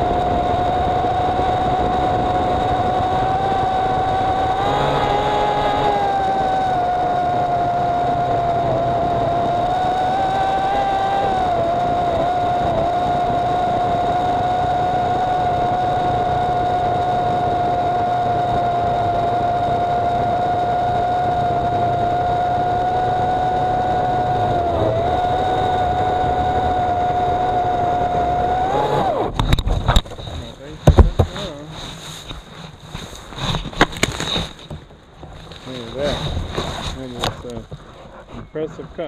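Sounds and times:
electric chainsaw cutting wood: 0:00.0 - 0:29.6.

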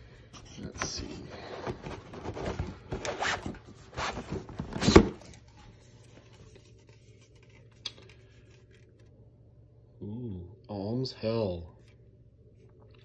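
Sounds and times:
faint room hum: 0:00.0 - 0:13.0
cardboard rustling and scraping: 0:00.4 - 0:09.1.

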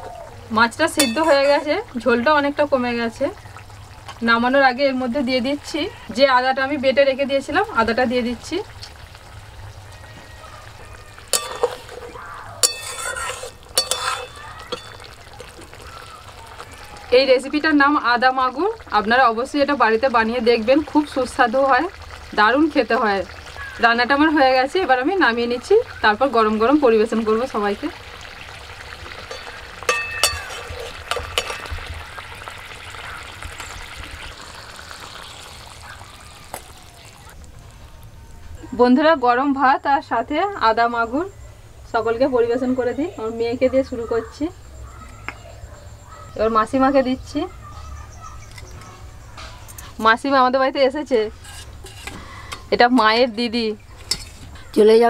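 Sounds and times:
curry sizzling in pot: 0:00.0 - 0:44.6, 0:46.0 - 0:55.0
spatula clinking against pan: 0:01.0 - 0:01.6, 0:11.3 - 0:12.0, 0:12.6 - 0:15.1, 0:29.3 - 0:31.8
spatula scraping through gravy: 0:11.3 - 0:15.0, 0:30.2 - 0:31.9, 0:51.3 - 0:52.6.

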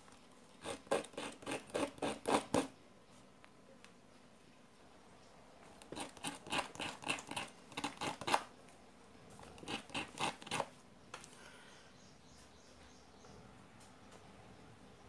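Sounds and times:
metal scratching on emery paper: 0:00.6 - 0:02.7, 0:05.8 - 0:08.5, 0:09.4 - 0:10.7.

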